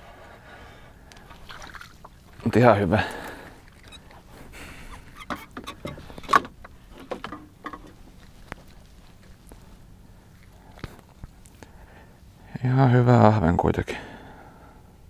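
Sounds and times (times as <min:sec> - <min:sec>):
knocks and clicks of fish handling: 0:04.9 - 0:08.0.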